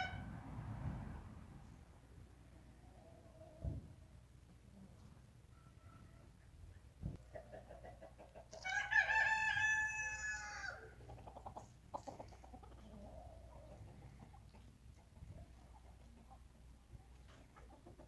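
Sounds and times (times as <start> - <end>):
hen clucking: 5.5 - 8.7, 10.5 - 18.0
rooster crowing: 8.6 - 10.9.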